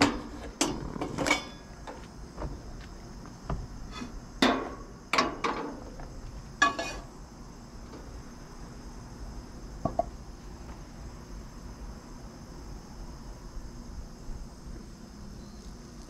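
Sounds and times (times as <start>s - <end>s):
metal pan clanks and knocks: 4.4s - 5.8s, 6.6s - 7.0s.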